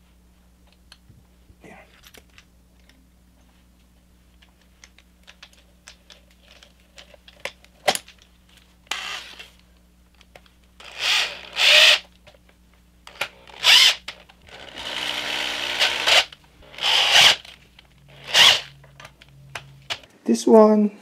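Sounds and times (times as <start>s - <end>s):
ratchet wrench ratcheting: 10.8s - 12.1s, 13.1s - 17.5s, 18.1s - 18.8s.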